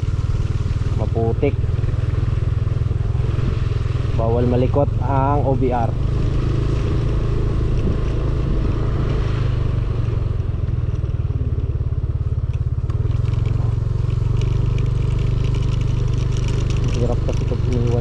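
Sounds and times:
small motorcycle engine: 0:00.0 - 0:18.0
motorcycle clicks and rattles: 0:10.6 - 0:18.0.

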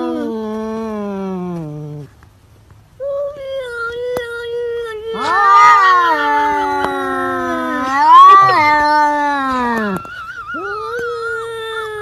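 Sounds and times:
cat yowling low: 0:00.0 - 0:02.1, 0:05.1 - 0:12.0
cat wailing yowl: 0:05.1 - 0:11.2.

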